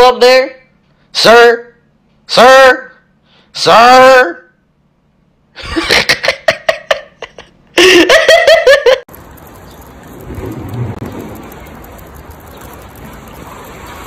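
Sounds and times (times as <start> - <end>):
outdoor background hiss: 0.0 - 14.0
person yelping and laughing: 5.6 - 9.0.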